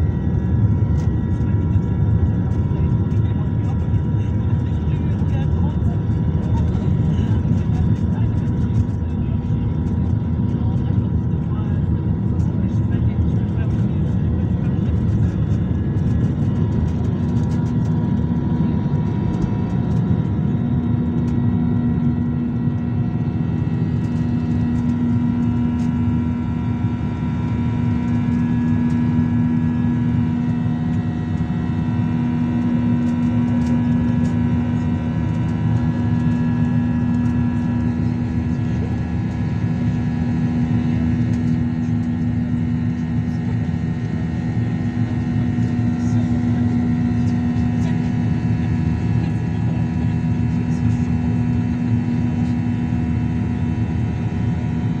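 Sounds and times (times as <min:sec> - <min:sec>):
wheels rumbling on runway: 0:00.0 - 0:55.0.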